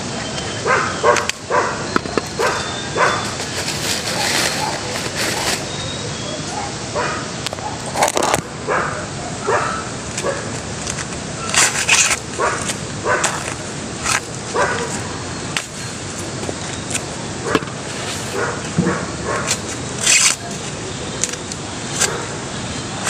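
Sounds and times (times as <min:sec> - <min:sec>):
corn husks tearing: 0:03.2 - 0:05.8, 0:10.1 - 0:17.1, 0:19.4 - 0:22.2.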